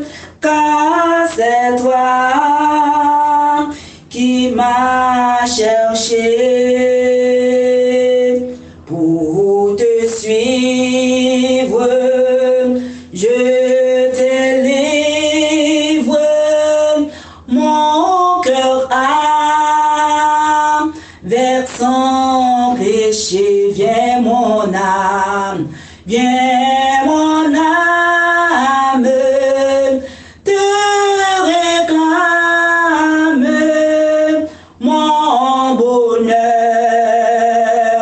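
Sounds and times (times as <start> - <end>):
voices singing a hymn: 0.0 - 38.0
singers breathing: 3.7 - 4.1, 17.1 - 17.5, 20.9 - 21.3, 25.7 - 26.1, 30.0 - 30.4, 34.5 - 34.8.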